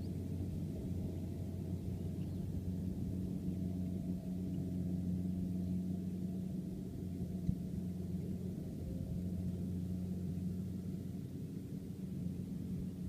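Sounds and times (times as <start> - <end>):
combine harvester engine drone: 0.0 - 13.0.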